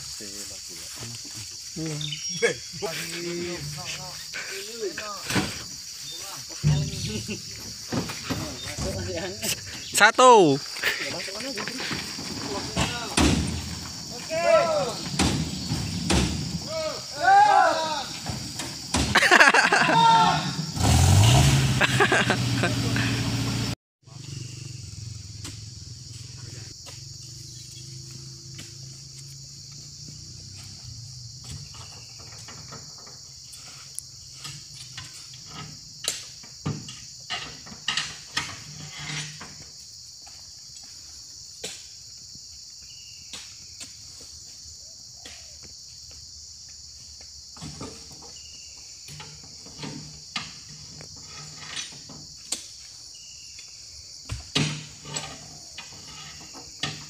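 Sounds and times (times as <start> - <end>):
insects droning: 0.0 - 57.0
fruit bunches thudding into truck: 11.9 - 16.9.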